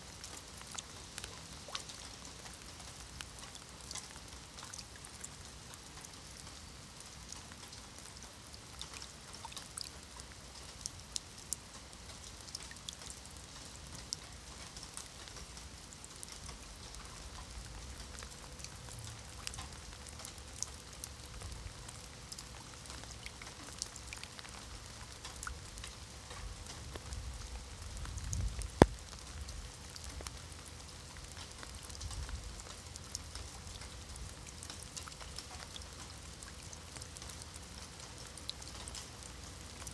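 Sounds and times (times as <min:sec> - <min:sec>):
rain on wet stone paving: 0:00.0 - 0:39.9
drops splashing into puddles: 0:28.4 - 0:30.4.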